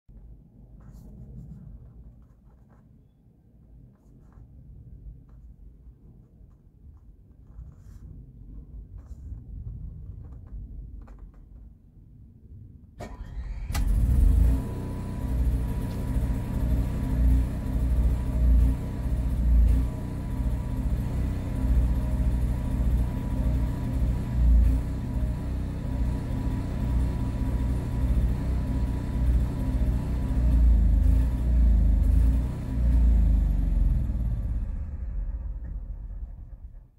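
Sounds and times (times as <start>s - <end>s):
generator trying to start: 13.0s - 20.2s
generator engine droning: 13.0s - 36.9s.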